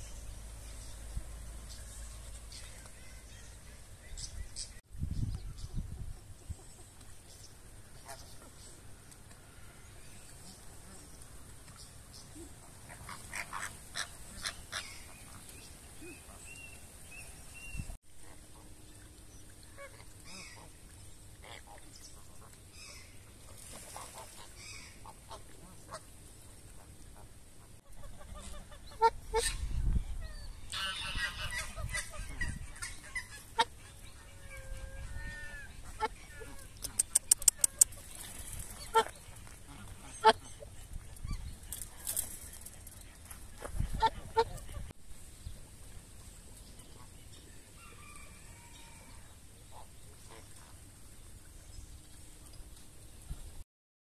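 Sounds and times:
flamingos honking: 0:28.0 - 0:29.8, 0:30.7 - 0:37.0, 0:38.7 - 0:40.7
sharp clicks: 0:36.8 - 0:38.0.

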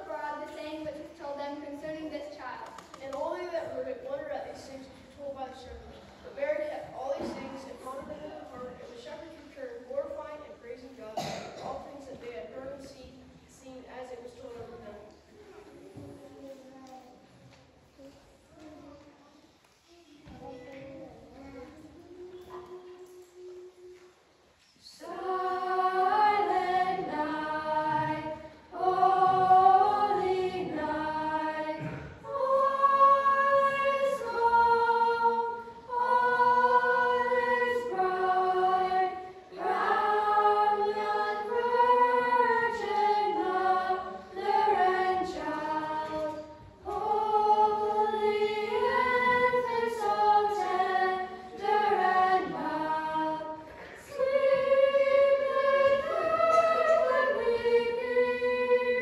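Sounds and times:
youth choir singing unaccompanied: 0:00.0 - 0:10.2, 0:10.8 - 0:12.9, 0:24.8 - 0:59.0.

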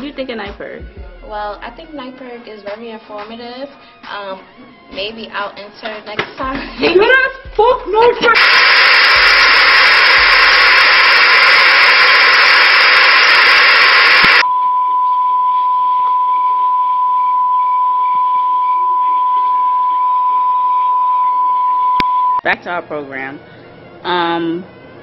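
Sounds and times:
television static hiss: 0:08.3 - 0:14.4.

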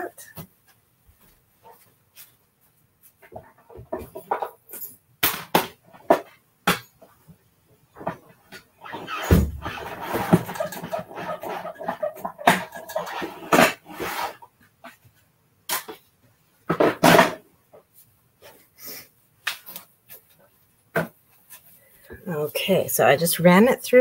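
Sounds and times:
metal plates clicking and knocking: 0:08.0 - 0:14.1
hand-cranked machine rumbling: 0:09.0 - 0:13.8.

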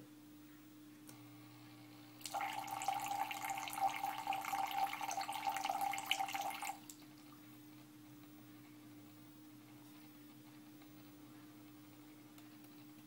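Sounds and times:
water pouring and splashing: 0:02.2 - 0:07.0.

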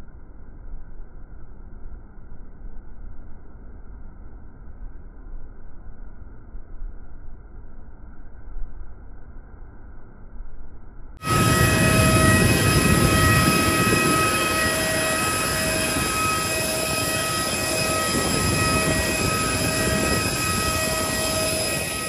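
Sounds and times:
jet turbine whine: 0:11.2 - 0:22.0.

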